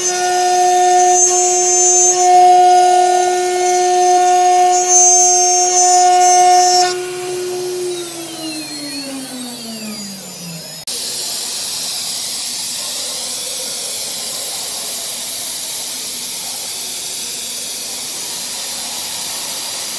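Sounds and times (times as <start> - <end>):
router spindle whining: 0.0 - 19.9
loud steady hiss: 10.9 - 19.9.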